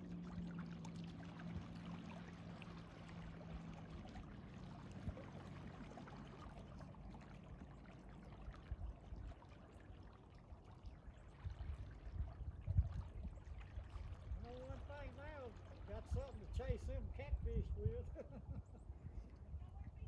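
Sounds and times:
water lapping and trickling: 0.0 - 20.0.

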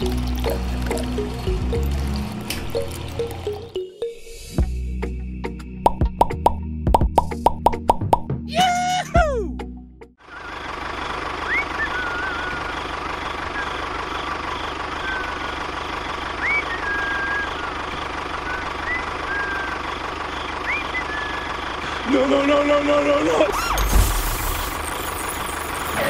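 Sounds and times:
engine idling with fast knock: 10.4 - 22.6.

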